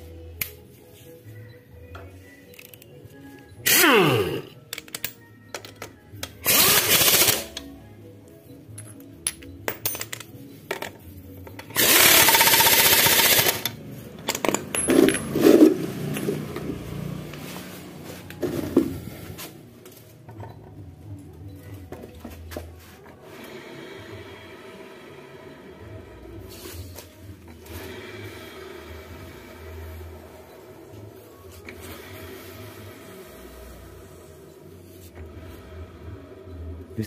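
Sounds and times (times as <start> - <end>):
impact wrench bursts: 3.7 - 4.5, 6.4 - 7.6, 11.7 - 15.6
metal tools clinking: 13.6 - 15.7.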